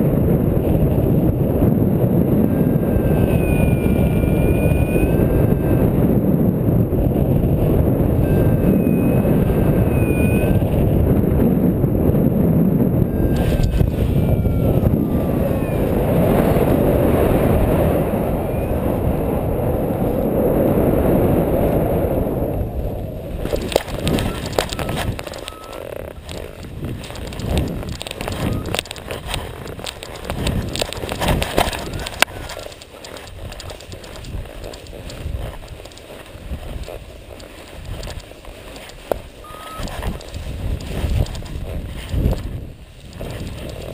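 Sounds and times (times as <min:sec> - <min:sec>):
crackles and clicks: 0:00.0 - 0:43.9
wind buffeting microphone: 0:00.0 - 0:43.9
faint thin high tone: 0:02.5 - 0:06.0, 0:08.2 - 0:10.8, 0:13.0 - 0:16.8, 0:18.2 - 0:19.1, 0:24.1 - 0:25.9, 0:39.4 - 0:40.2.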